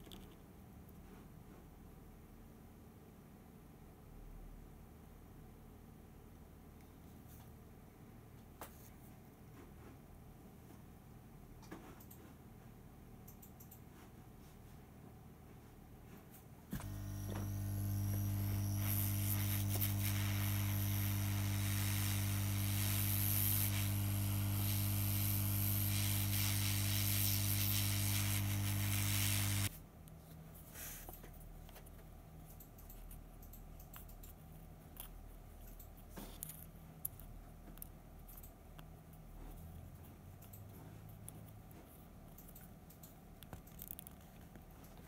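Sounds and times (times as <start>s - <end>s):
handling noises and small clicks: 0.0s - 1.0s, 29.6s - 45.0s
hot air gun blowing: 16.8s - 29.7s.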